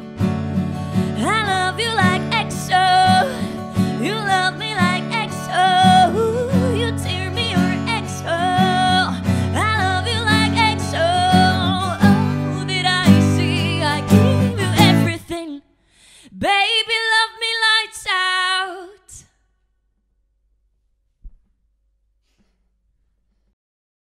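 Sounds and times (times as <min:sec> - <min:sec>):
strummed acoustic guitar: 0:00.0 - 0:15.2.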